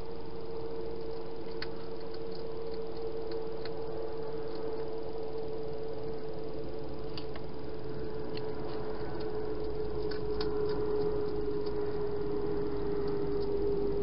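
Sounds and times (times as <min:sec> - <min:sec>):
steady hum: 0:00.0 - 0:14.0
hedgehog chewing clicks: 0:00.9 - 0:05.5, 0:08.3 - 0:14.0.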